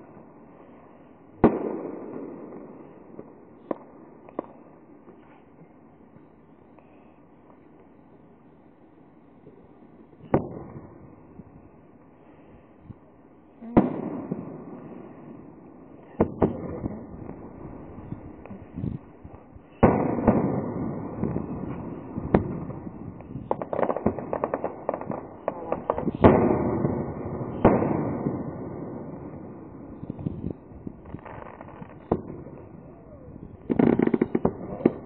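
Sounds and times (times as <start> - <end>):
fireworks booming: 0.0 - 6.9, 9.4 - 35.0
fireworks crackling: 13.5 - 35.0.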